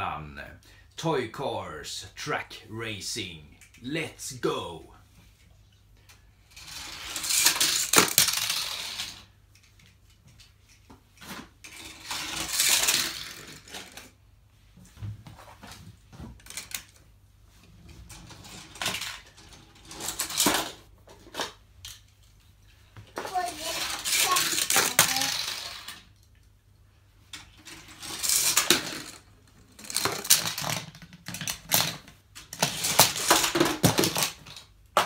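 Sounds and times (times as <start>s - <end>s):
toy cars rattling down plastic track: 6.4s - 9.8s, 11.6s - 14.2s, 16.4s - 17.0s, 18.0s - 22.0s, 23.2s - 26.3s, 27.3s - 35.0s.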